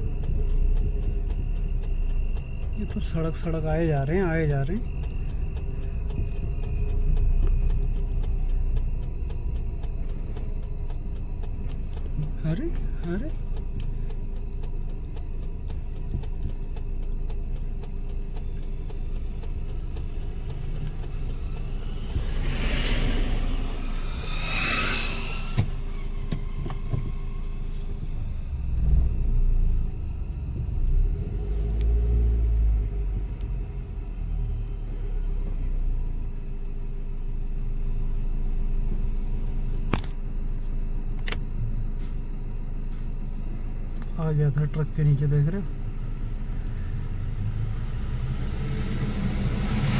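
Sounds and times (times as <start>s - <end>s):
oncoming vehicles rushing past: 0.0s - 35.9s, 45.9s - 49.9s
car cabin engine and road rumble: 0.0s - 49.9s.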